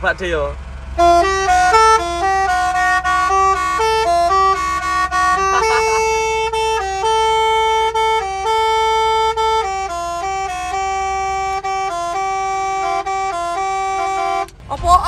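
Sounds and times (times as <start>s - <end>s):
truck air horn playing melody: 0.9s - 14.6s.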